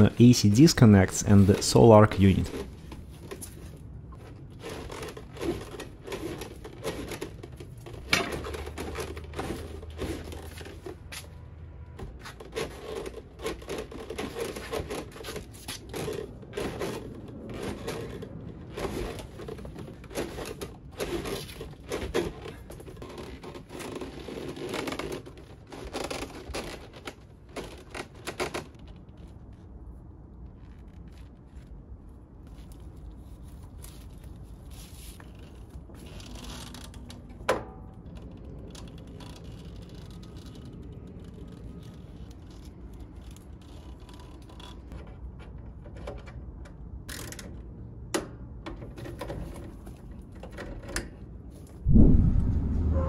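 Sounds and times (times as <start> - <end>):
cable scraping and rustling: 0.0 - 11.4, 12.0 - 37.4, 38.0 - 46.3.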